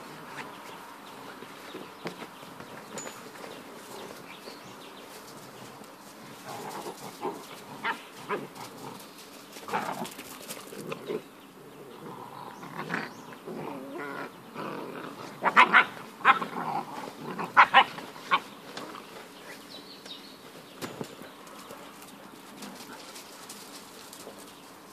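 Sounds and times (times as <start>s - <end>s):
puppies yapping: 15.2s - 18.6s.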